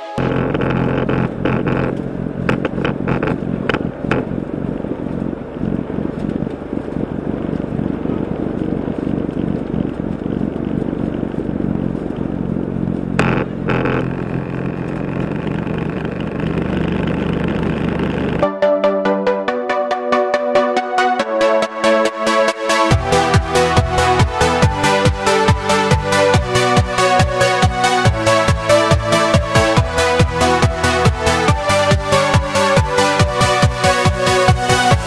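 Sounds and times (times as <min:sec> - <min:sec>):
car interior road rumble: 0:00.2 - 0:18.4.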